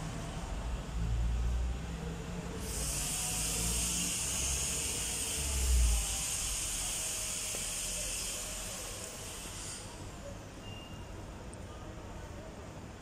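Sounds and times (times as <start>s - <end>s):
steady high hiss: 2.6s - 10.2s.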